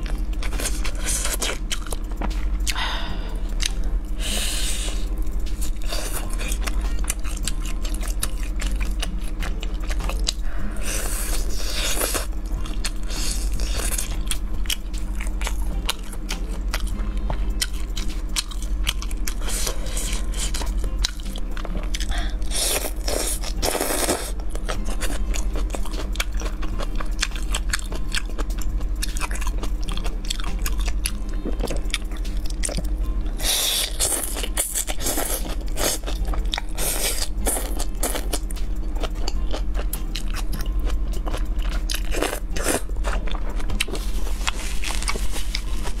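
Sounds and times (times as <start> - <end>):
crunching and wet chewing: 0.0 - 46.0.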